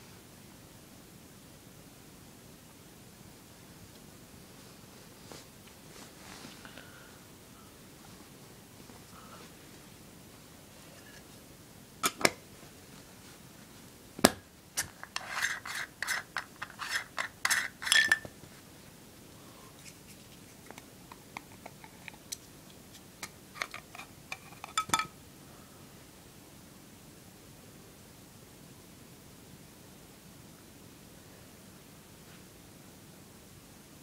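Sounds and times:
scraping of lens parts: 0:14.8 - 0:18.3, 0:22.9 - 0:25.0.

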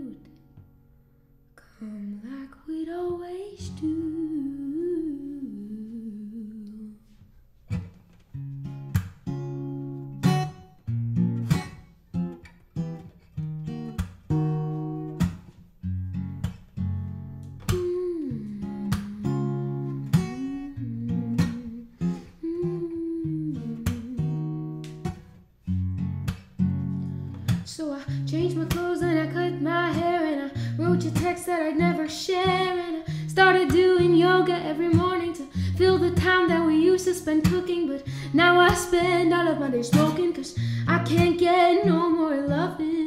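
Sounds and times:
acoustic guitar strumming chords: 0:07.9 - 0:22.8
person humming: 0:17.7 - 0:24.7.

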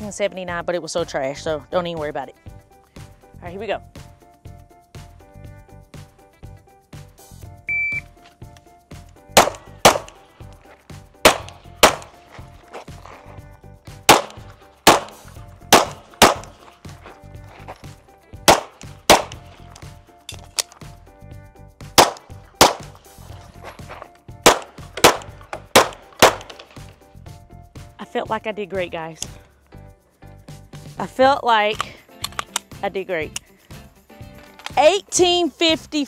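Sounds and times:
pistol shots: 0:09.4 - 0:10.2, 0:11.2 - 0:12.2, 0:14.1 - 0:16.6, 0:18.4 - 0:19.5, 0:22.0 - 0:23.0, 0:24.4 - 0:26.7.

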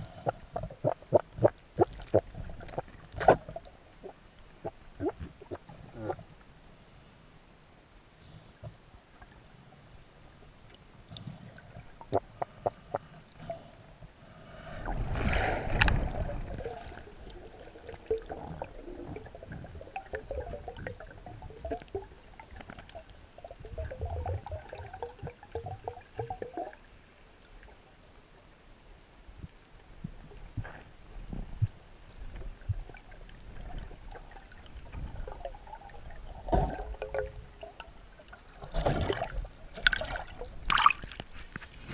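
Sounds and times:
water gurgling and bubbling: 0:14.8 - 0:26.8, 0:32.5 - 0:41.2.

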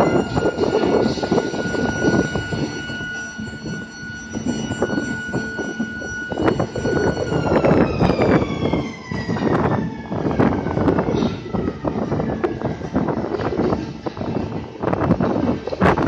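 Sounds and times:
high machine whine: 0:00.0 - 0:16.0.

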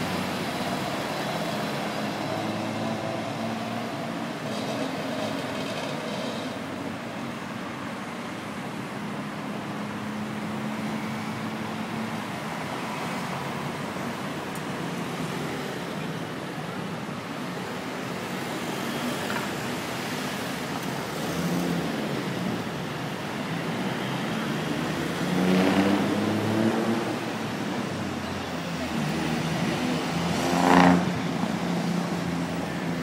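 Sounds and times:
dense road traffic: 0:00.0 - 0:33.0
car accelerating past: 0:25.1 - 0:27.2, 0:30.2 - 0:31.2.

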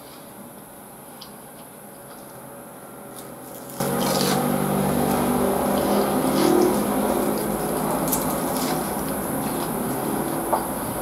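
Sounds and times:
motor-like drone: 0:03.8 - 0:10.9.

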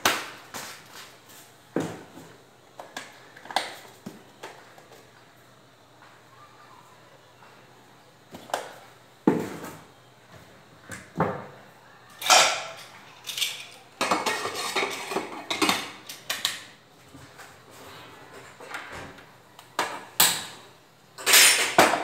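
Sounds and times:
pots and pans clattering: 0:12.2 - 0:16.4, 0:21.2 - 0:22.0.

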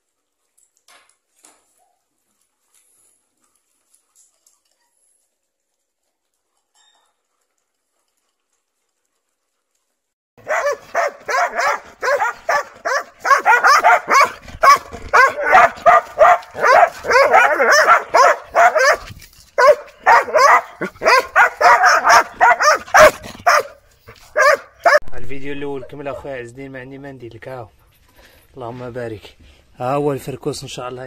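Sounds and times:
dogs barking: 0:10.4 - 0:25.0.

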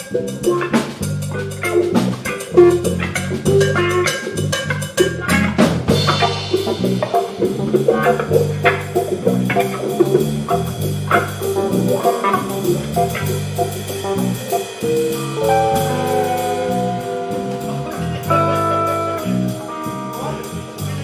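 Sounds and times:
bending held notes: 0:00.0 - 0:21.0
live jazz band playing: 0:00.0 - 0:21.0.

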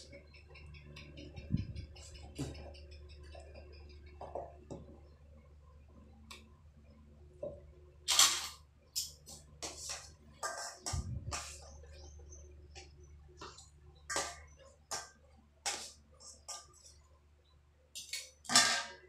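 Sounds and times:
dishes clattering in metal basin: 0:10.4 - 0:11.6.

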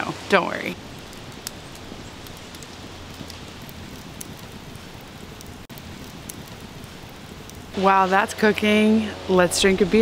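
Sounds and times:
campfire crackling: 0:00.0 - 0:10.0
sharp fire pops: 0:00.8 - 0:08.0.

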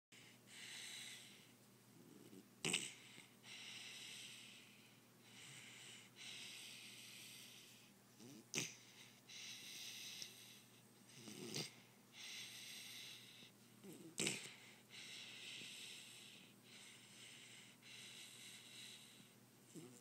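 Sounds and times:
dog snoring: 0:00.2 - 0:20.0
dog snorting: 0:05.6 - 0:16.9.

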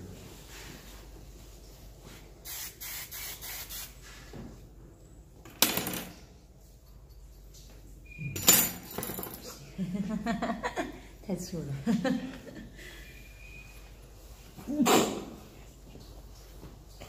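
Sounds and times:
hairspray hissing bursts: 0:02.4 - 0:04.0.

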